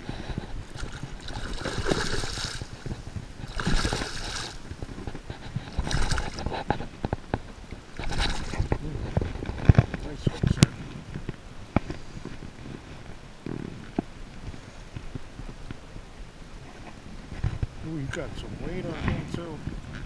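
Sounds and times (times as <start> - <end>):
fish splashing in water: 0.5 - 6.7, 8.0 - 8.8.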